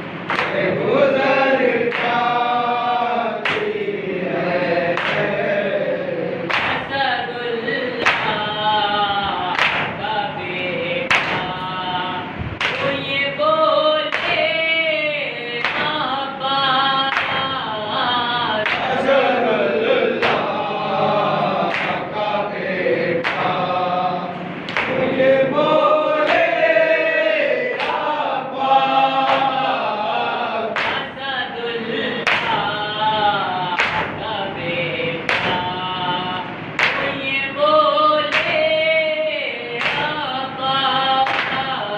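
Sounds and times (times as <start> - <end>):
men chanting a lament: 0.0 - 41.9.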